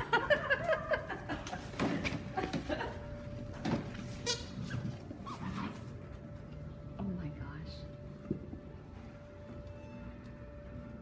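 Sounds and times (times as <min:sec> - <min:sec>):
puppies yelping and squealing: 0:04.3 - 0:05.9.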